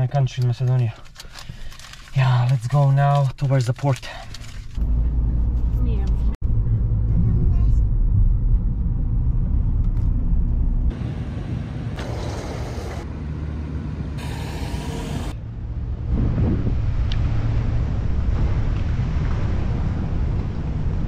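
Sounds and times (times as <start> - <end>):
car engine and road noise: 4.2 - 21.0
low vehicle rumble: 4.5 - 21.0.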